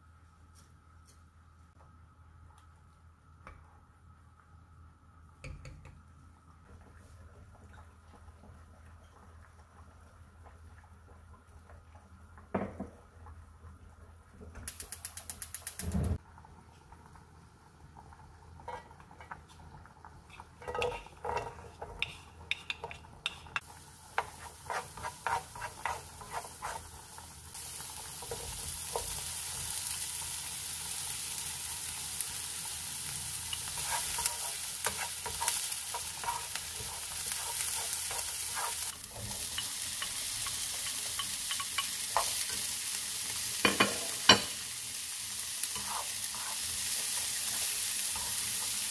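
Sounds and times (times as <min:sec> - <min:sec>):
oil sizzling: 0:05.4 - 0:48.9
spatula scraping frying pan: 0:20.3 - 0:23.5, 0:24.1 - 0:27.2, 0:33.5 - 0:42.7, 0:45.6 - 0:48.9.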